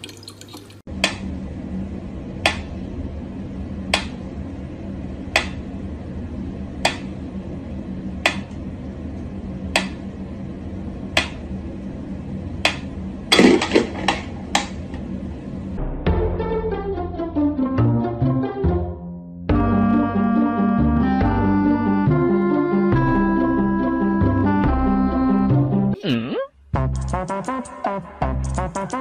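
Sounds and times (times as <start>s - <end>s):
music: 15.8s - 26.0s, 26.7s - 29.0s.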